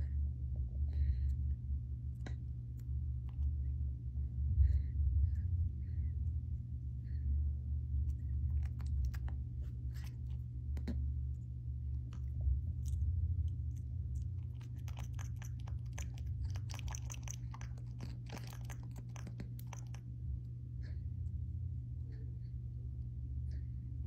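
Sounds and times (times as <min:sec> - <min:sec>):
steady low hum: 0:00.0 - 0:24.0
monkey chewing with mouth clicks: 0:12.0 - 0:20.1.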